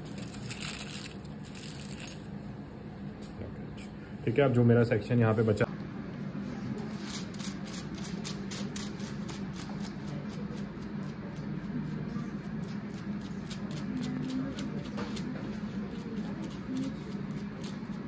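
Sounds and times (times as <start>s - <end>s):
brush stroking hair on foil: 0.0s - 2.3s, 6.6s - 18.0s
low steady hum: 0.0s - 18.0s.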